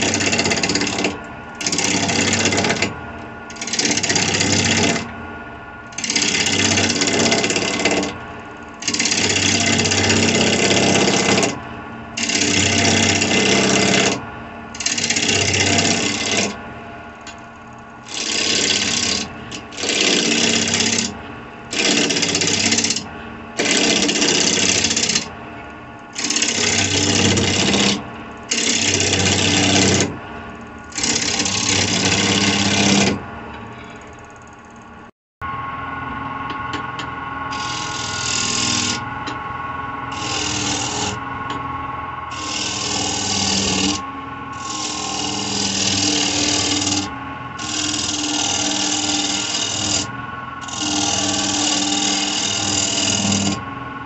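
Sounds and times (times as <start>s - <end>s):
gouge cutting wood on lathe: 0.0s - 2.9s, 3.5s - 5.1s, 5.9s - 8.2s, 8.8s - 11.6s, 12.2s - 16.6s, 18.0s - 25.3s, 26.1s - 30.2s, 30.9s - 33.2s, 37.5s - 39.0s, 40.1s - 41.2s, 42.3s - 44.0s, 44.6s - 53.6s
lathe motor hum: 0.0s - 54.0s.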